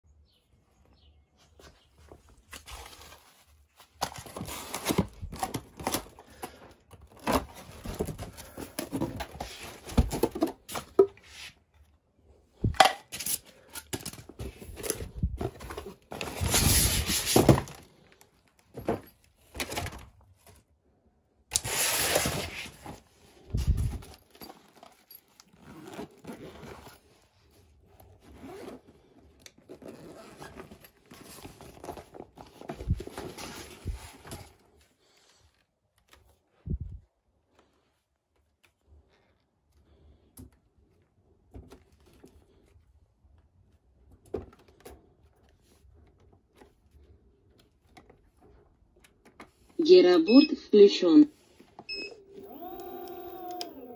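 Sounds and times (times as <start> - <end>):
box flaps scraping and thumping: 7.1 - 11.0
nylon bag rustling: 22.2 - 34.6.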